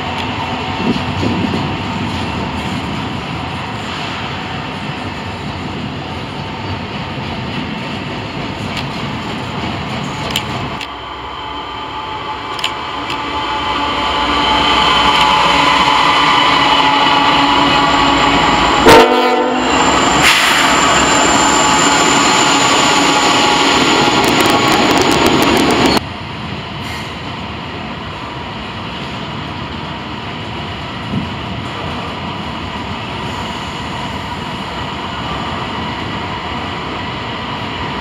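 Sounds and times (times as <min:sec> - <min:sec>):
diesel locomotive engines: 0:00.0 - 0:38.0
passing train: 0:00.0 - 0:38.0
train horn blast: 0:13.5 - 0:20.8.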